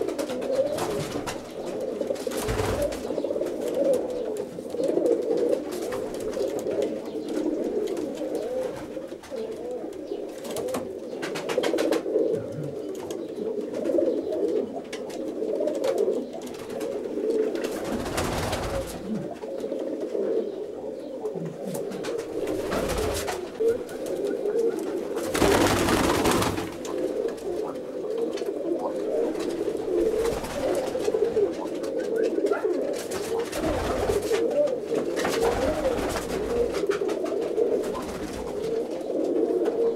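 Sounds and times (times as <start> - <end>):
pigeons cooing: 0.0 - 39.9.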